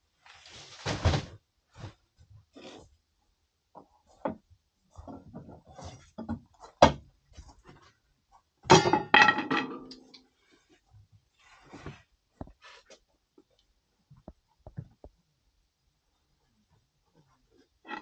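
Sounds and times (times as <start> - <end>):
objects being handled: 17.1 - 18.0.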